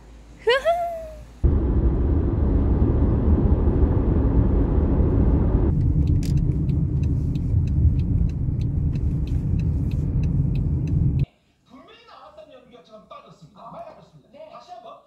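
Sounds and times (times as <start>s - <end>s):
car road and engine rumble: 0.0s - 11.3s.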